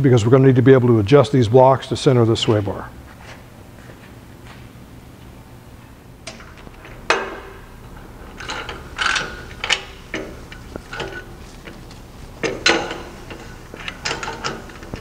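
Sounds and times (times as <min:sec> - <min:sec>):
metal clicks and clunks: 0:06.2 - 0:15.0.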